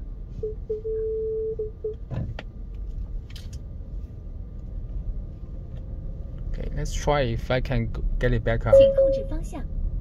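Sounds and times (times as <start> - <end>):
road rumble in car cabin: 0.0 - 10.0
dashboard alert beeps: 8.7 - 9.5.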